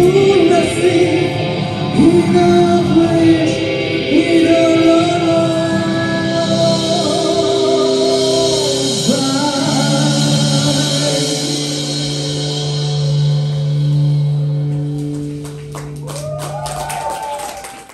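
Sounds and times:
man singing: 0.0 - 12.2
live rock band: 0.0 - 17.9.

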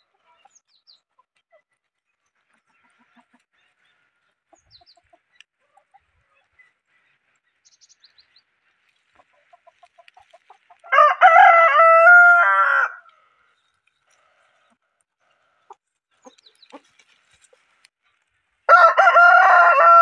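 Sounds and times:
rooster crowing: 10.9 - 13.1, 18.7 - 20.0.

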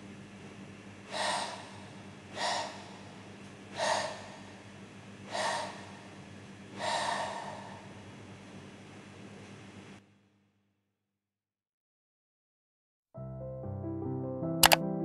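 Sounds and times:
tortoise breathy mating calls: 1.0 - 4.7, 5.3 - 6.2, 6.8 - 8.0.

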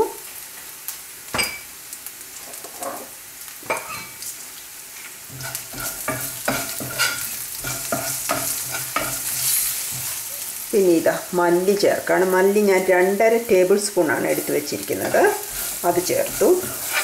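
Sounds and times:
garlic and onions sizzling in oil: 0.0 - 17.0
spoon scraping against pan: 5.3 - 10.5, 14.2 - 17.0.

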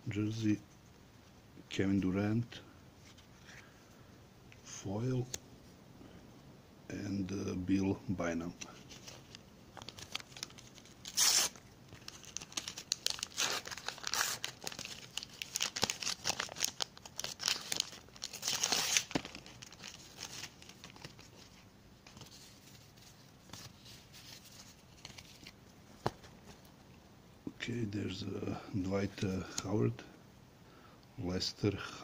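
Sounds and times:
wrapper tearing and crinkling: 9.0 - 21.4.

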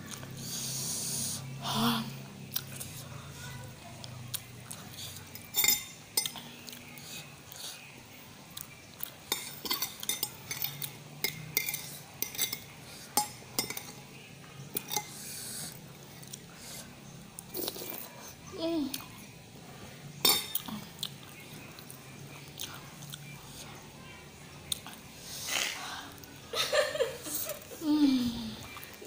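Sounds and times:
cutlery clinking on a ceramic plate: 5.3 - 6.4, 9.3 - 14.0, 14.8 - 15.2, 20.2 - 20.7.

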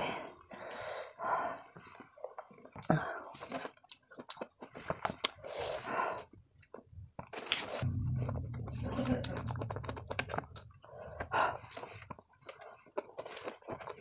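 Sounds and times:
wet chewing mouth sounds: 1.9 - 6.9, 11.6 - 14.0.

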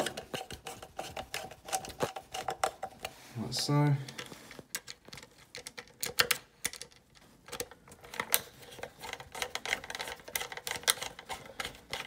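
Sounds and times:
hands handling plastic clicks: 4.1 - 12.0.

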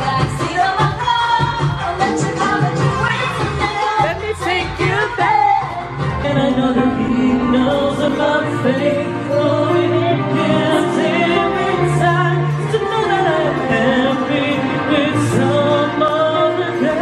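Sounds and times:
karaoke backing track: 0.0 - 17.0
man singing into microphone: 6.2 - 17.0.

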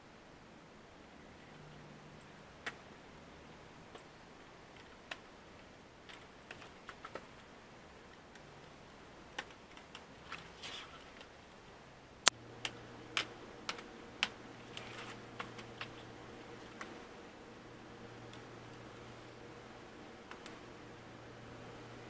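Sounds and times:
faint low hum: 0.0 - 22.0
rustling: 3.8 - 11.7, 12.6 - 17.4.

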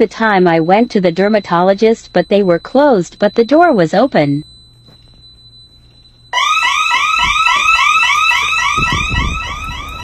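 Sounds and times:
building alarm warbling tone: 6.3 - 10.0.

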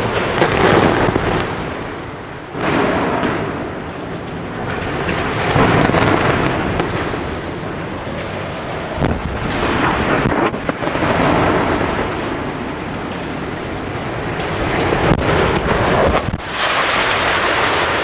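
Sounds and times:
smokestacks crashing down: 0.0 - 18.0
sharp explosive bangs: 9.0 - 13.5.

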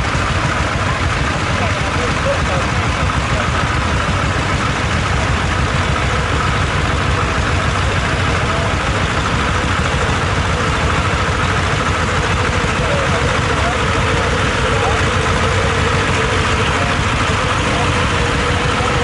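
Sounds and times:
tractor diesel engine chugging: 0.0 - 19.0.

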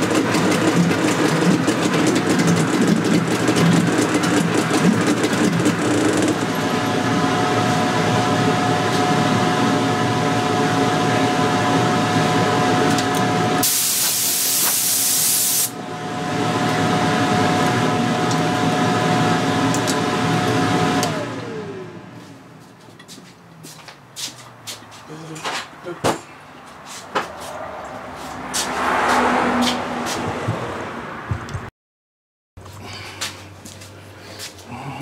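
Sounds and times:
outboard engine running: 0.0 - 12.8
loud hiss: 13.6 - 15.7.

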